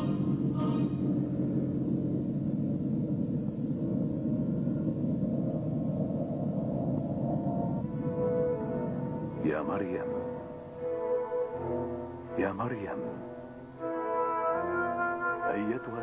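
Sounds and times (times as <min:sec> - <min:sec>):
choir singing: 0:00.0 - 0:01.3, 0:07.8 - 0:16.0
low rumbling drone: 0:00.0 - 0:16.0.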